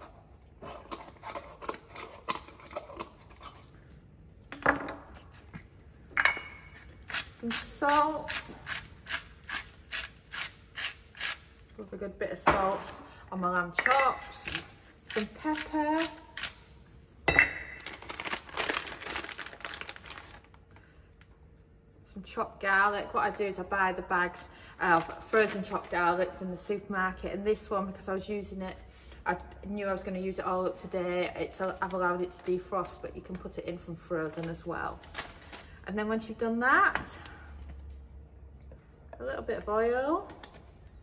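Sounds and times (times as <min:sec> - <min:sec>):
plastic bag crinkling: 0:17.6 - 0:20.9.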